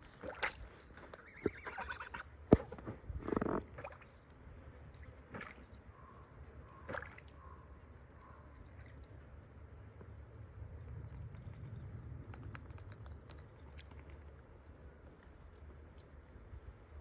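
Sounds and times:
water splashing in a bucket: 0.0s - 2.2s, 3.3s - 4.3s, 4.9s - 6.0s, 6.8s - 7.4s
goose call: 1.2s - 2.2s.

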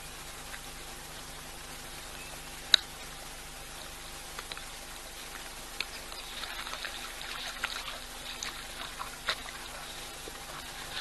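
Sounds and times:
faint high-pitched hum: 0.0s - 11.0s
steady hiss: 0.0s - 11.0s
small clicks and ticks: 0.4s - 0.7s, 2.7s - 11.0s.

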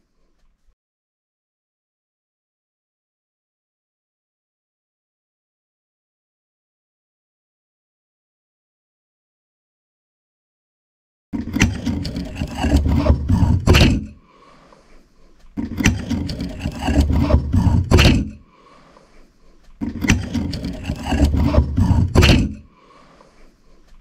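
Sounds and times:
harsh scraping noise: 11.4s - 15.0s, 15.6s - 23.9s.

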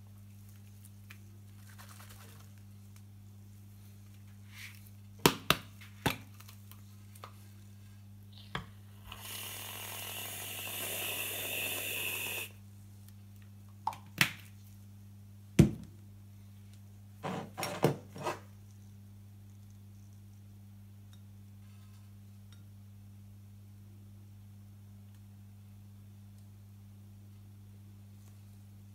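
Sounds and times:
grainy hiss of flakes shaken: 1.5s - 2.9s.

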